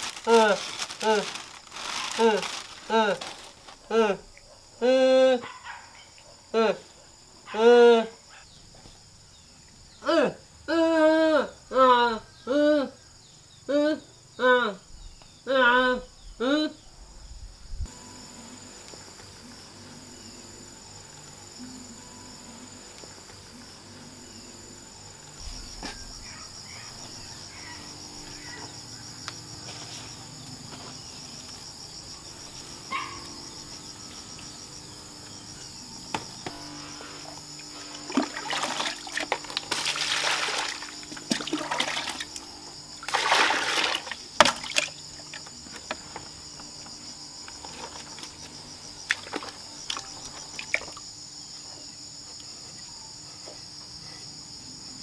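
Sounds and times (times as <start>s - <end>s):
insects chirring: 0.0s - 55.0s
water poured into plastic basin: 38.1s - 42.3s, 43.0s - 45.0s.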